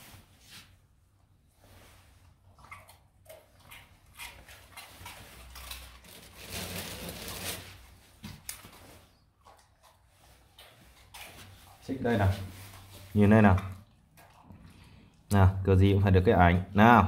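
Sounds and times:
dogs chewing treats: 3.2s - 6.8s.

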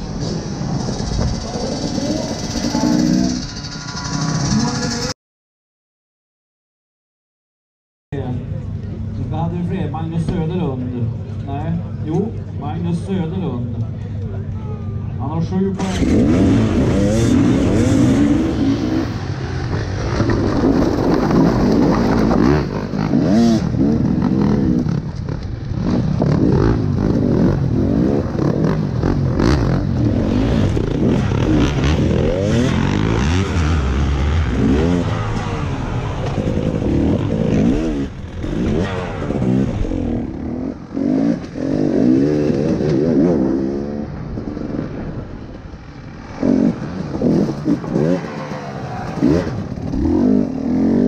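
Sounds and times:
motorcycle engine revving: 0.0s - 5.2s, 15.8s - 51.0s.

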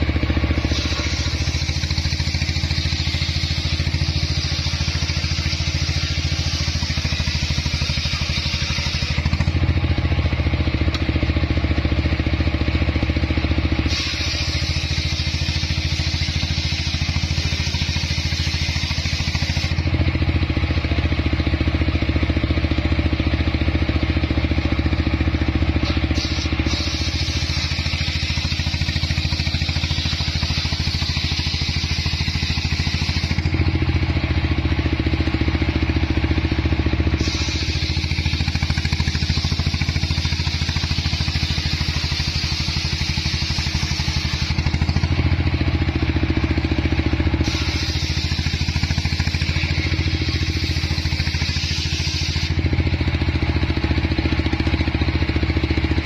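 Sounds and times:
sawmill engine running: 0.0s - 56.0s
saw blade ripping through log: 0.6s - 9.6s, 13.8s - 19.9s, 25.8s - 33.6s, 37.1s - 45.2s, 47.4s - 52.6s.

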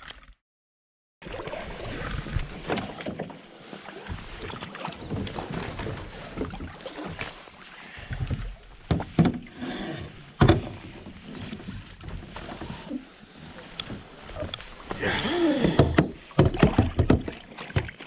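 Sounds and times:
water splashes: 1.2s - 18.0s
footsteps on wet stones: 5.2s - 8.1s
canoe hull knocking on rocks: 8.2s - 9.5s, 10.4s - 11.2s, 15.6s - 18.0s.

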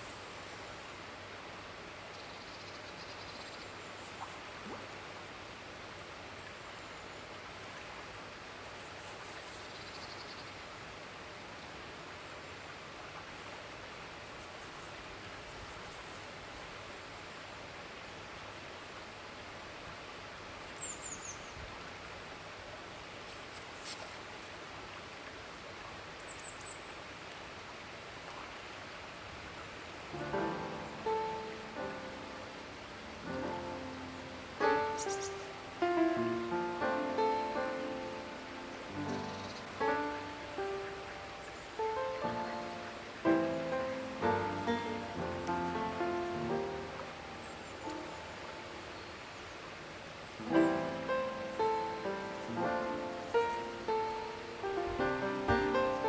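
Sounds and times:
river hiss: 0.0s - 56.0s
high bird chirps: 35.0s - 35.4s
light tick: 47.8s - 48.0s.

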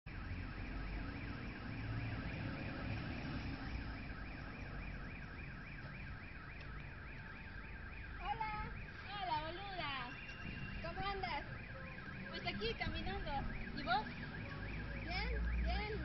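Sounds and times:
car alarm sweeping: 0.1s - 16.0s.

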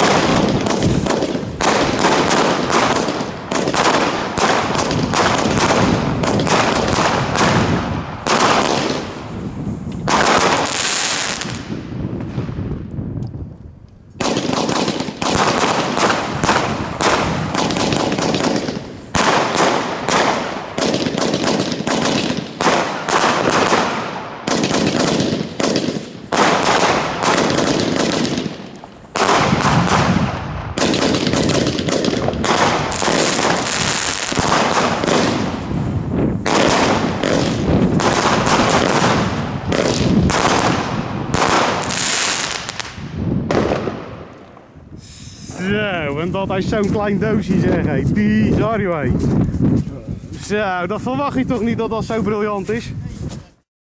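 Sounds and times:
firework cake firing: 0.0s - 11.8s, 14.2s - 45.9s.

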